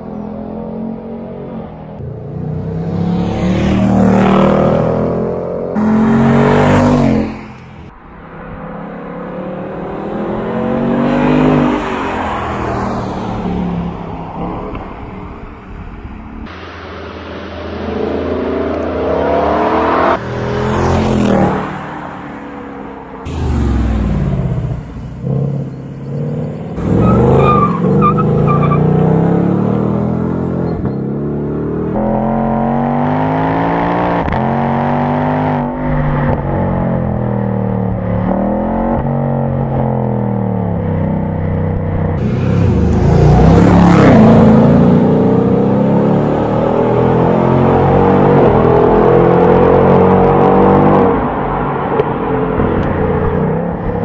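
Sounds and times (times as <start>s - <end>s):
car engine accelerating: 2.0s - 14.0s, 23.3s - 54.0s.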